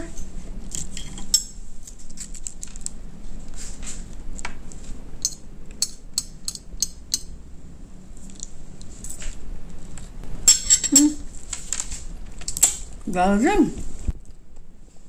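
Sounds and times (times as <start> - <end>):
crisp fried food crackling: 1.8 - 3.0
tableware clicking: 10.5 - 11.2.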